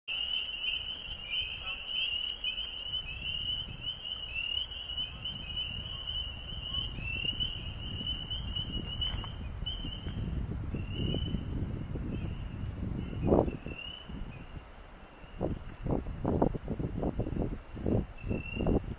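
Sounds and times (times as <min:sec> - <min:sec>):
frogs calling: 0:00.1 - 0:11.5, 0:13.4 - 0:16.0.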